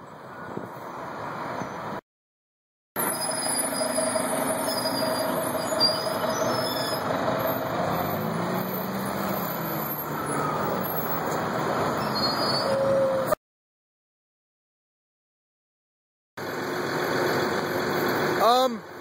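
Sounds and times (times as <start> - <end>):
bus driving past: 3.0 - 13.4, 16.4 - 19.0.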